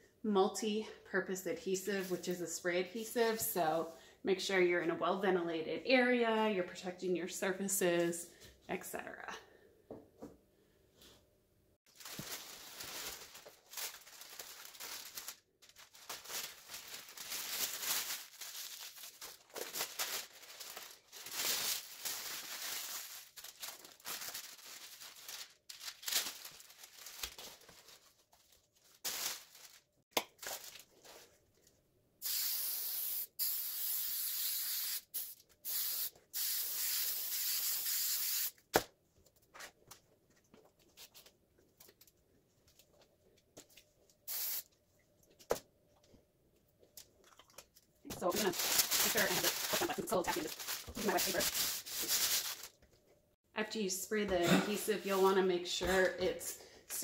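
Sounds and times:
plastic sheeting rustling: 0:11.9 - 0:31.2, 0:48.2 - 0:52.8
spray can hissing: 0:32.2 - 0:38.6, 0:44.3 - 0:44.7.

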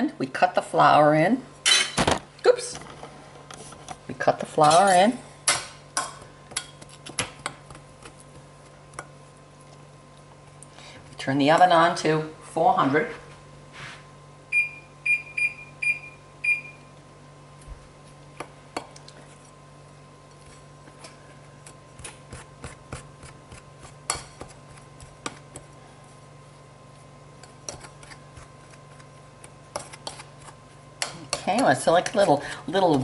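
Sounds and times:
oven control panel beeps: 0:14.5 - 0:16.9
pastry blender scraping ceramic bowl: 0:27.4 - 0:33.0.

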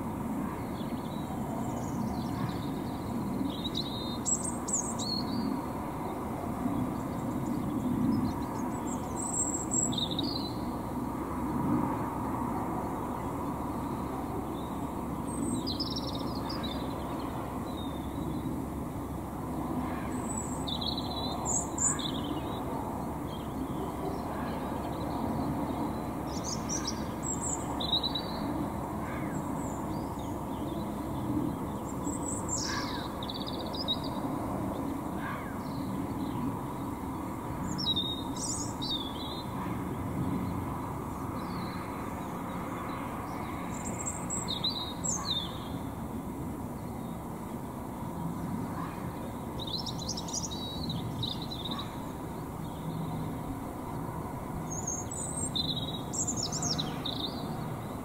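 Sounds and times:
distant traffic rumble: 0:00.0 - 0:58.0
songbird singing: 0:00.4 - 0:58.0.

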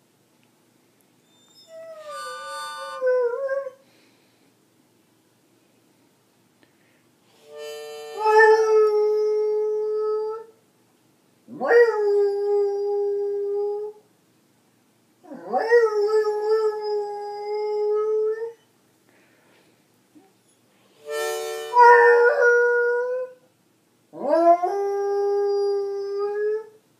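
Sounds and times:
harmonica: 0:01.3 - 0:03.1, 0:07.3 - 0:08.7, 0:20.8 - 0:22.2
dog howling: 0:01.5 - 0:03.8.

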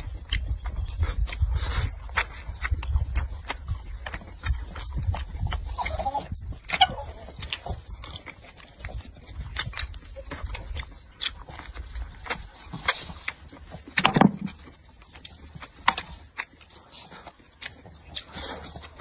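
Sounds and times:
chewing and mouth smacking: 0:00.0 - 0:19.0.

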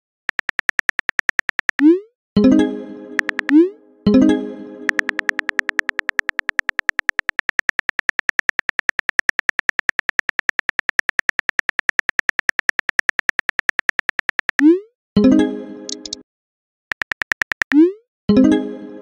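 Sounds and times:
phone keyboard typing taps: 0:00.3 - 0:01.9, 0:03.2 - 0:03.6, 0:04.9 - 0:14.7, 0:15.9 - 0:16.2, 0:16.9 - 0:17.8.

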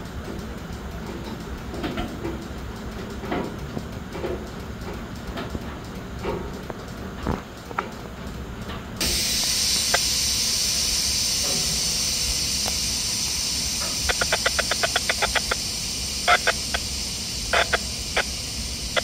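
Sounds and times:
air brakes hissing: 0:09.0 - 0:19.0
quick clicks: 0:12.6 - 0:19.0.

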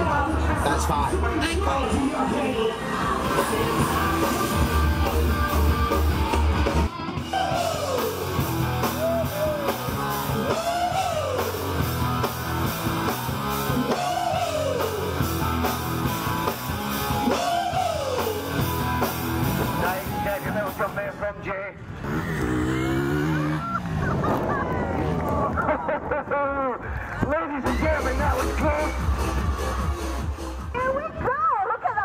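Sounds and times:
music with heavy bass: 0:00.0 - 0:21.2, 0:27.6 - 0:31.4
live rock band playing: 0:01.1 - 0:21.2, 0:27.6 - 0:31.0.

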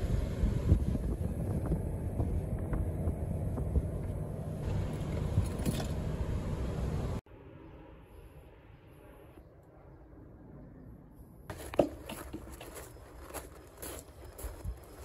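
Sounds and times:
wind buffeting microphone: 0:00.0 - 0:06.2
traffic rumble: 0:00.0 - 0:15.0.

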